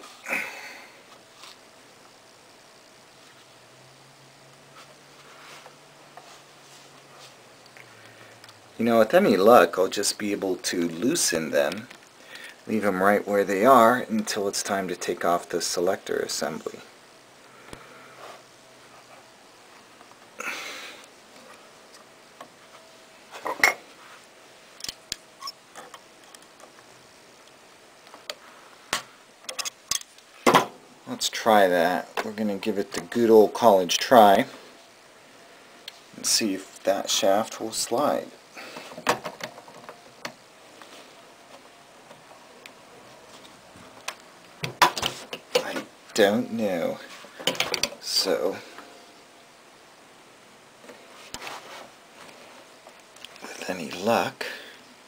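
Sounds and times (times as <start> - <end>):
scraping rustle: 50.9 - 52.8.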